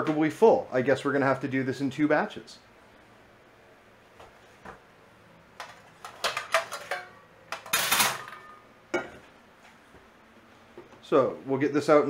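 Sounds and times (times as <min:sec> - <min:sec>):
metal bowl clanking against pots: 0:05.6 - 0:09.2.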